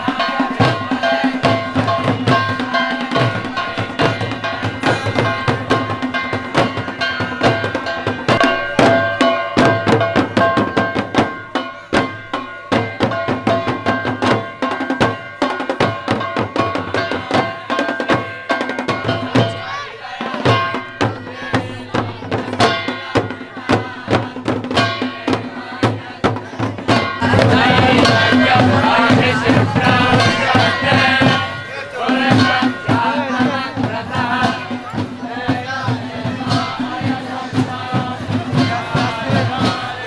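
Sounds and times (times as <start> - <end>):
hand drums beating: 0.0 - 40.0
many voices singing: 0.0 - 40.0.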